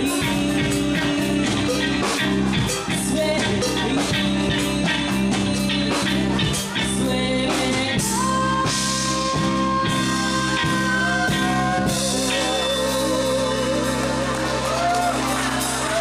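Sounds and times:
woman singing: 0.0s - 14.9s
electric guitar: 0.0s - 16.0s.

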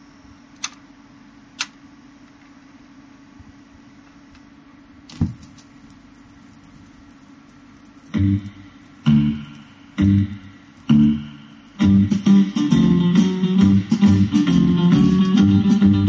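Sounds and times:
guitar chords struck: 8.1s - 16.0s
song with guitar and bass: 8.1s - 16.0s.

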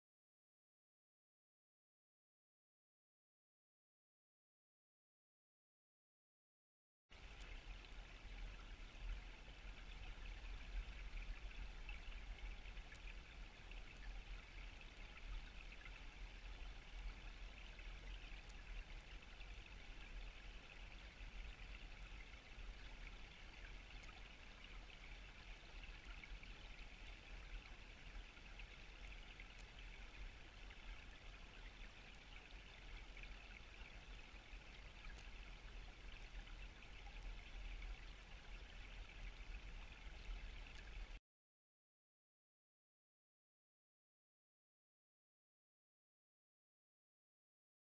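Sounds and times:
river water heard underwater: 7.1s - 41.2s.

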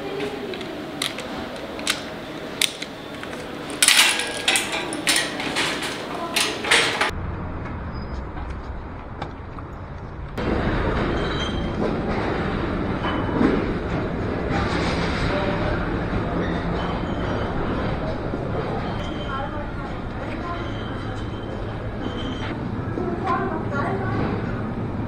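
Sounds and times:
trolley coin lock clicks: 0.6s - 7.1s
metal trolleys clattering: 1.0s - 7.1s.

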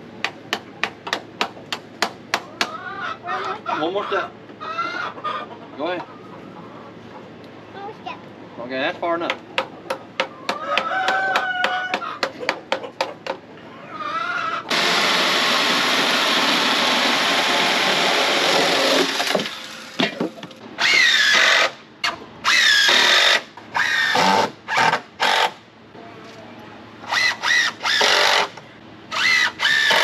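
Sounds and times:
cordless drill driving screws: 22.5s - 25.5s, 27.1s - 28.5s, 29.1s - 30.0s.

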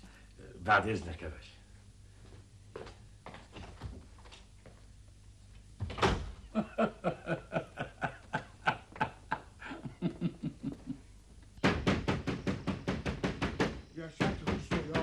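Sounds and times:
door shutting: 5.8s - 6.4s
old man chuckling: 6.5s - 11.1s.

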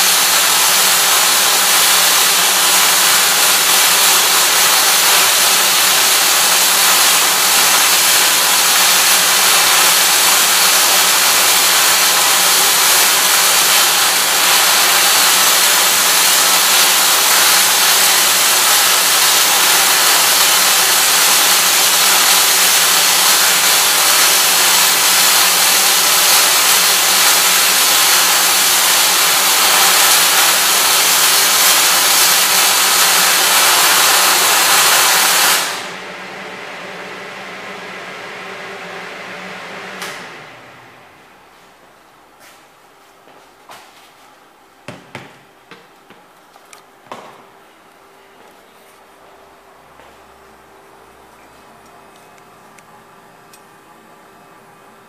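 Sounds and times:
welding arc hissing: 0.0s - 36.0s.

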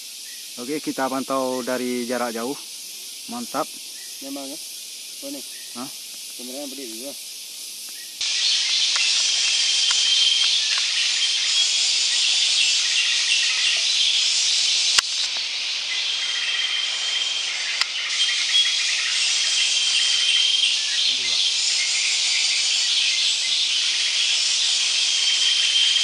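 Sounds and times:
insects buzzing: 0.0s - 26.0s.

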